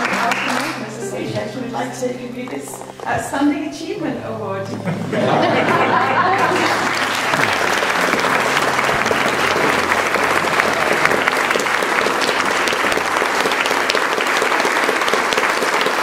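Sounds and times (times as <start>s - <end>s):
audience applauding: 0.0s - 1.4s, 5.2s - 16.0s.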